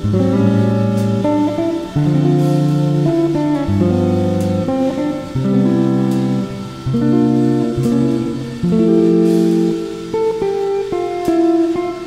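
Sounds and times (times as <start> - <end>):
plucked guitar music: 0.0 - 12.0.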